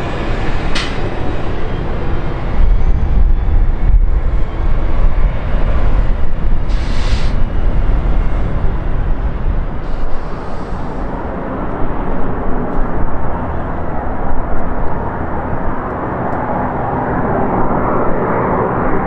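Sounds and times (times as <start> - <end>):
jet engines roaring: 0.0 - 19.0
short hiss: 6.7 - 7.4.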